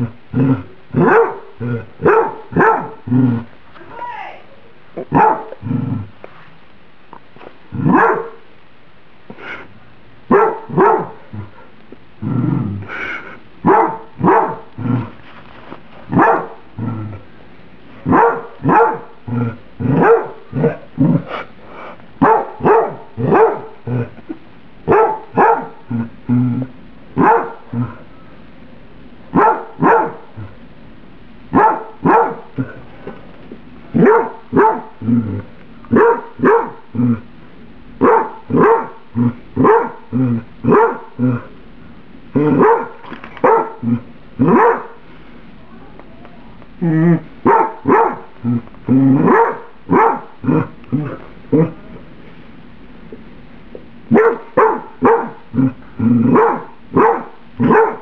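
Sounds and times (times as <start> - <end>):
dog barking: 1.0 - 3.0, 5.1 - 5.6, 7.8 - 8.4, 10.3 - 11.2, 13.6 - 14.6, 16.1 - 16.6, 18.0 - 19.2, 19.9 - 20.8, 22.2 - 23.8, 24.9 - 25.8, 27.2 - 27.6, 29.3 - 30.2, 31.5 - 32.5, 34.0 - 34.9, 35.9 - 36.8, 38.0 - 39.0, 39.6 - 40.0, 40.7 - 41.1, 42.5 - 43.8, 44.4 - 45.0, 47.4 - 48.3, 49.2 - 50.3, 54.1 - 55.4, 56.3 - 58.0.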